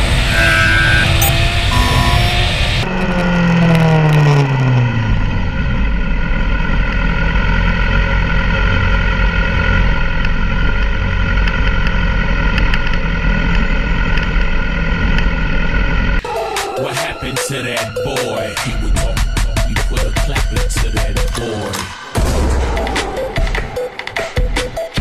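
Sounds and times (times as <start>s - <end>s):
motorcycle engine running: 0.0s - 16.3s.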